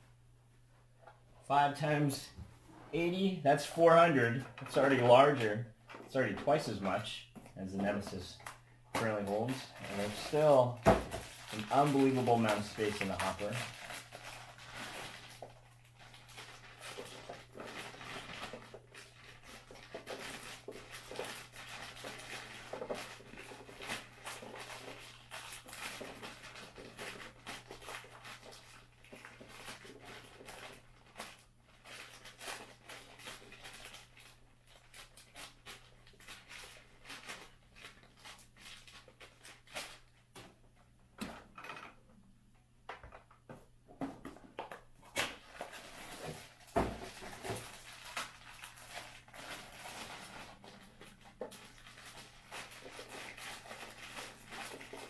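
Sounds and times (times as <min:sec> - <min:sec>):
plastic bag crinkling: 0:07.6 - 0:40.4, 0:44.9 - 0:55.0.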